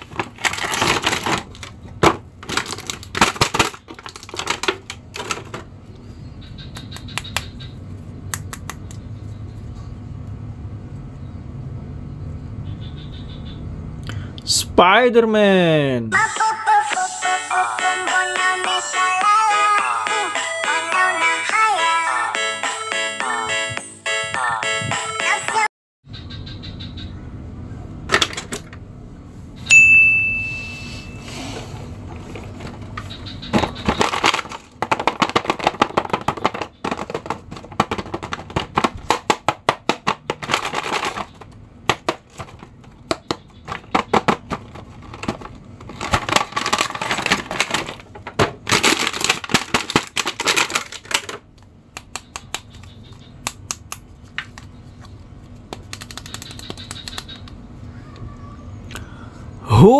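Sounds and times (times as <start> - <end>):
plastic packaging crinkling: 0.0 - 5.6, 33.6 - 38.9, 40.3 - 41.6, 43.7 - 51.5.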